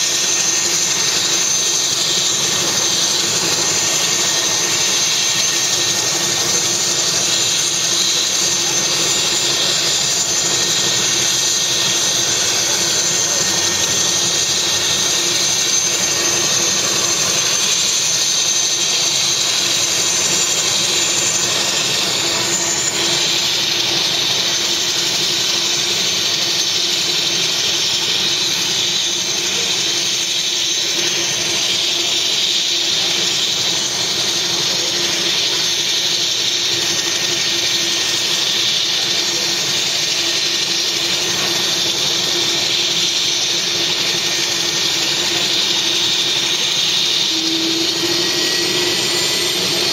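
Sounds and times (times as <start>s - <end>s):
helicopter turbine whine: 0.0s - 49.9s.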